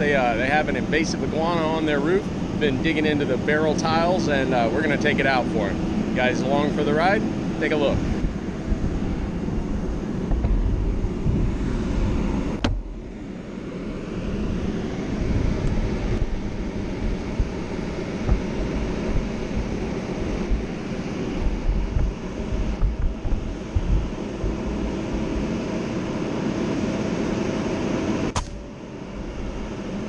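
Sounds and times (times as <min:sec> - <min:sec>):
wind buffeting microphone: 0:00.0 - 0:27.0
sharp click: 0:28.3 - 0:28.6.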